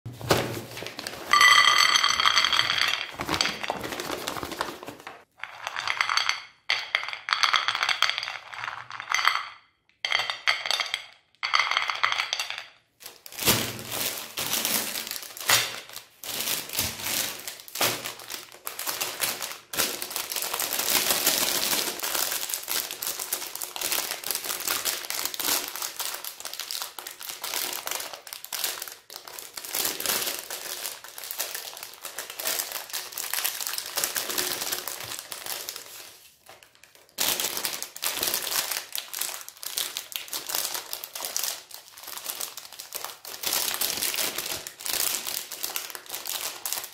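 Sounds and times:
plastic wrappers crinkling: 0.1s - 6.2s, 12.0s - 46.9s
candies clattering onto ceramic plate: 1.2s - 13.3s.

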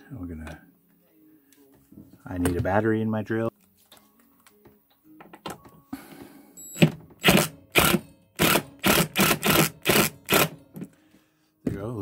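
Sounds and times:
drill driving screw in bursts: 6.8s - 10.6s.

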